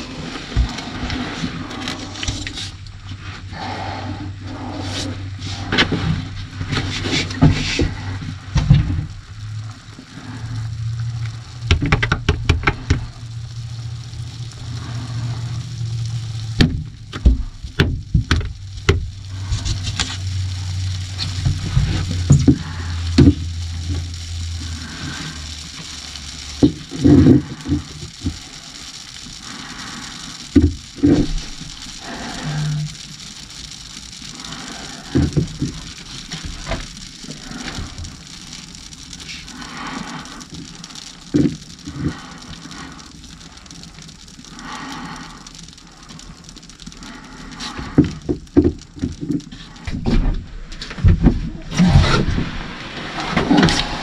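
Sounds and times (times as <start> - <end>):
low steady hum: 0.0 - 54.0
knocks bumps and rustling: 5.7 - 9.1, 48.0 - 53.8.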